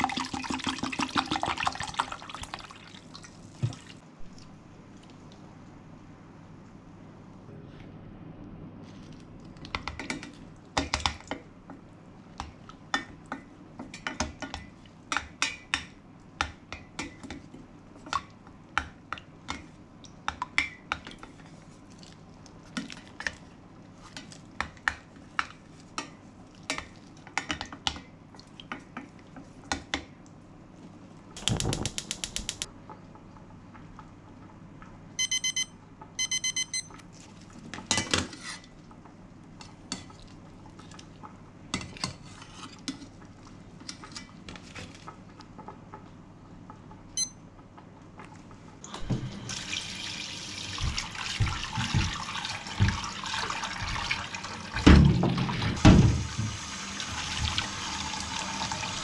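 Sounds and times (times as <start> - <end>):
kitchen timer beeping: 35.2 - 36.9, 47.2 - 47.4.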